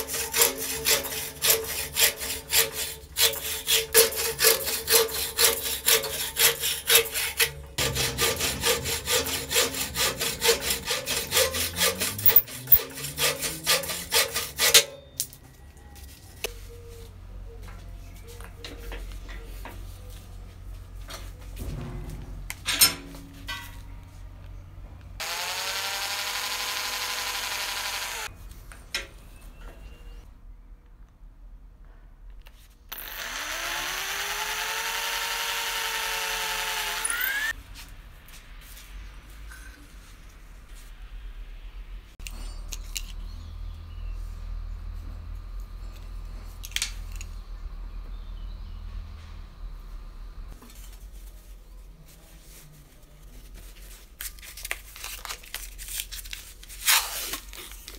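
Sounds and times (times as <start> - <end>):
low steady hum: 0.0 - 25.2, 37.5 - 53.2
cordless drill boring into wood: 25.2 - 28.3, 32.9 - 37.5.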